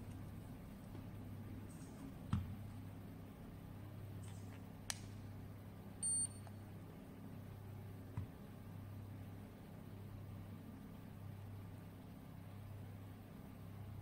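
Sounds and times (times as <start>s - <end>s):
short high beep: 6.0s - 6.4s.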